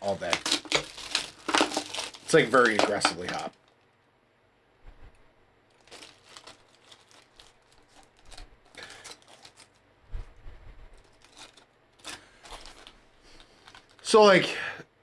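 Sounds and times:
wrapping crinkling and tearing: 0.0s - 3.8s, 5.7s - 9.8s, 11.0s - 14.1s.

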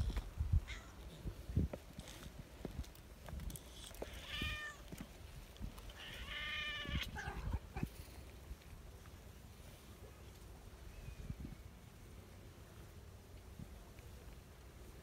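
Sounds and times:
cat meowing: 4.0s - 4.8s, 6.0s - 7.6s.

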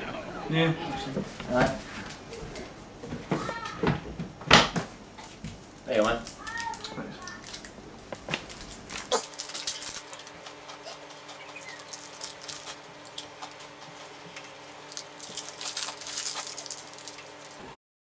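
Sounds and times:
foil wrapper crinkling: 6.0s - 17.7s
biting and chewing: 6.6s - 17.7s.

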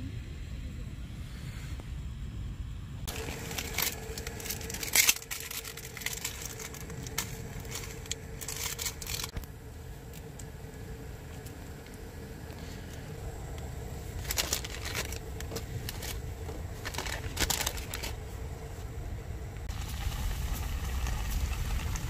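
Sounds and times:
low rumble: 0.0s - 22.0s
seasoning sachets crinkling: 3.1s - 9.4s, 14.1s - 18.2s.

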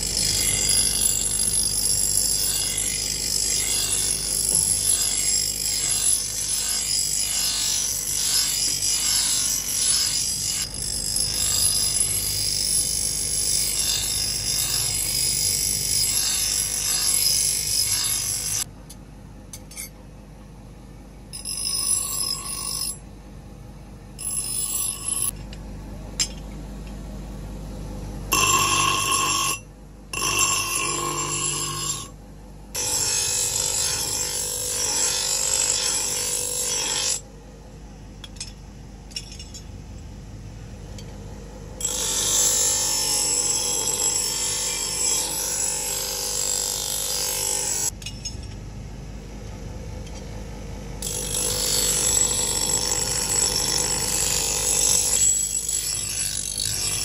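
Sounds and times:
grinding wheel grinding steel: 0.0s - 18.7s, 28.3s - 32.2s, 32.8s - 37.2s, 51.0s - 57.0s.

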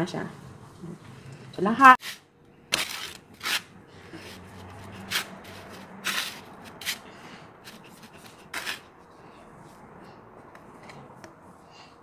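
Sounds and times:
breadcrumbs rustling and scraping: 2.0s - 8.9s.

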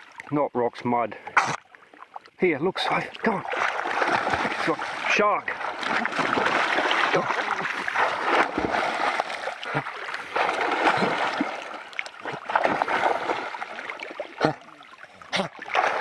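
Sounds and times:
dogs splashing in water: 3.2s - 14.7s, 15.3s - 16.0s.

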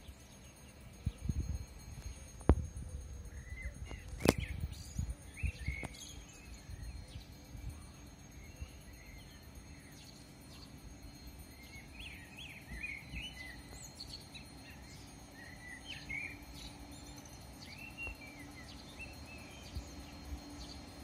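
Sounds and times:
small birds chirping: 3.2s - 21.0s.

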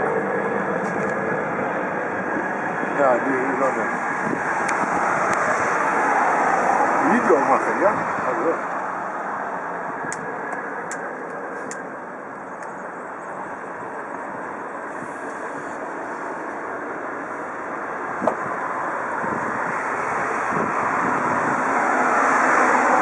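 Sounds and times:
helicopter rotor and engine drone: 0.0s - 23.0s.

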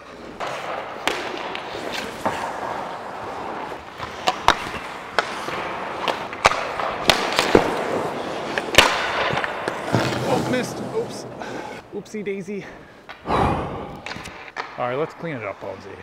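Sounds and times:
skates scraping ice: 0.0s - 13.2s, 13.9s - 16.0s
sticks and pucks cracking: 0.4s - 10.8s, 13.9s - 15.3s.

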